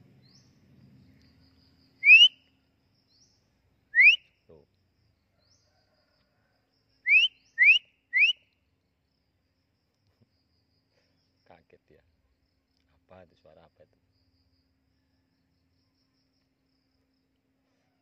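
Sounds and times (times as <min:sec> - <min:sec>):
person whistling rising notes: 0:02.0 - 0:02.3, 0:04.0 - 0:04.2.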